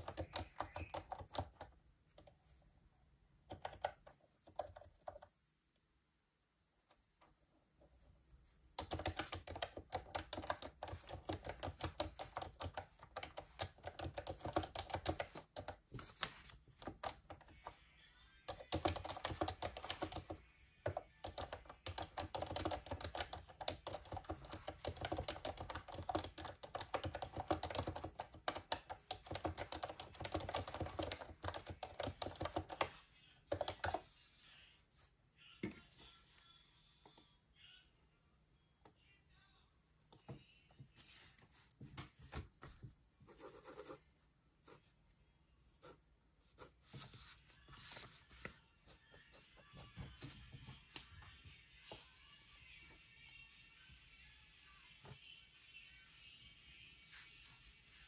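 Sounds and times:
typing on computer keyboard: 0:00.0 - 0:02.4, 0:03.4 - 0:05.3, 0:08.8 - 0:17.8, 0:18.4 - 0:34.0.

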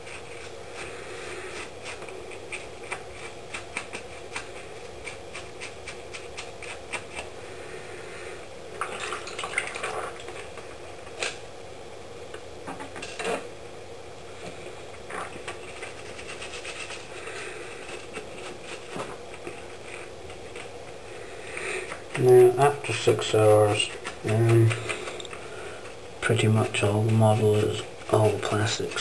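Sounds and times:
toothbrush scrubbing plastic model: 0:00.0 - 0:07.3, 0:15.2 - 0:20.7, 0:21.8 - 0:29.0.

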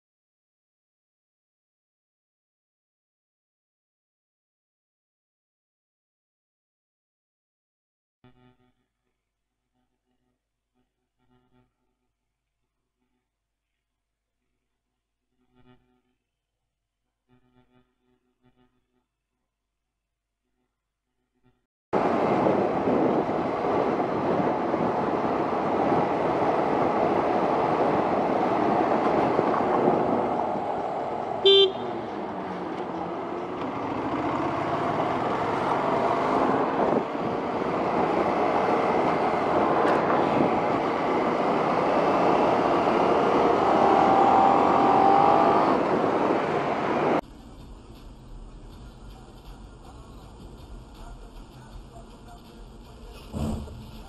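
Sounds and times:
wind rush: 0:22.0 - 0:31.4, 0:35.2 - 0:47.2
motorcycle engine: 0:25.7 - 0:47.2
horn beep: 0:31.4 - 0:32.2.

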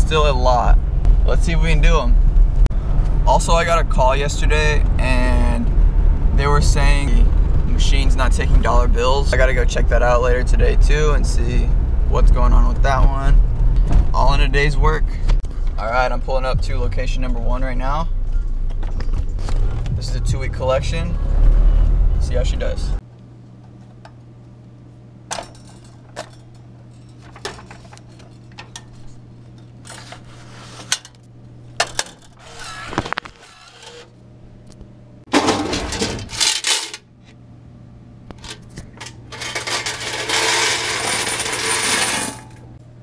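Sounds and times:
steady low hum: 0:00.0 - 0:43.0
clicks and metal clatters: 0:25.3 - 0:30.2, 0:35.3 - 0:37.4, 0:38.3 - 0:42.6
coins jingling into a bag: 0:39.4 - 0:42.5.

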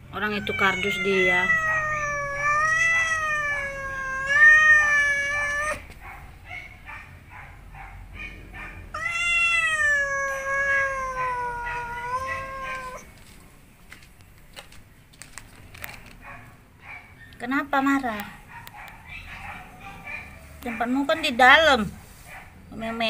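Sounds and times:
cat yowling: 0:00.2 - 0:05.9, 0:08.9 - 0:13.1.

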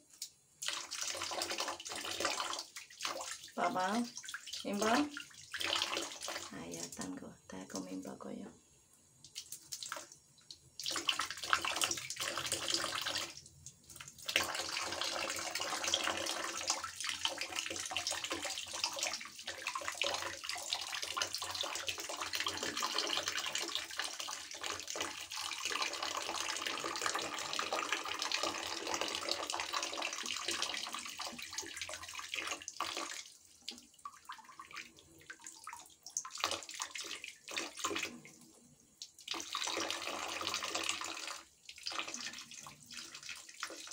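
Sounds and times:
shower water splashing into bucket: 0:00.0 - 0:08.0, 0:09.2 - 0:43.9.

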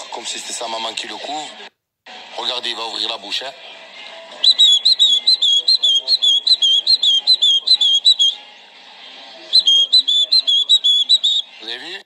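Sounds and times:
nestling bird cheeping: 0:04.4 - 0:08.4, 0:09.6 - 0:11.5.

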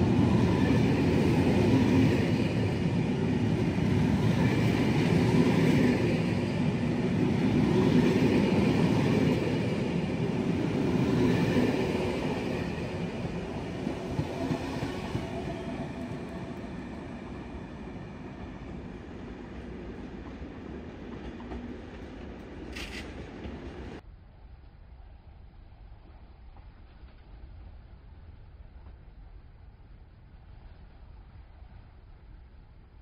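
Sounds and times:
train rumbling on rails: 0:00.0 - 0:24.0.

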